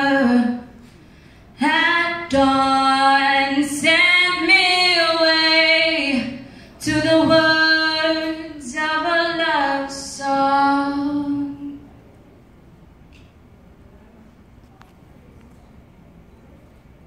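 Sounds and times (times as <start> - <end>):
girl singing a cappella: 0.0 - 0.9, 1.6 - 11.9.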